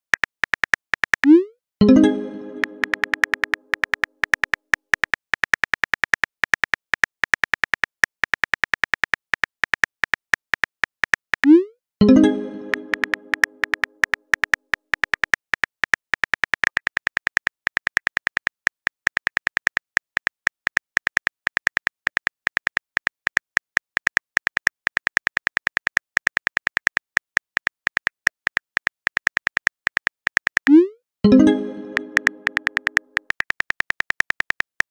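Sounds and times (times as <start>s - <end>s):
phone keyboard clicks: 0.0s - 1.4s, 2.6s - 30.8s, 31.4s - 34.9s
chime: 1.8s - 3.2s, 12.0s - 13.6s, 31.3s - 32.7s.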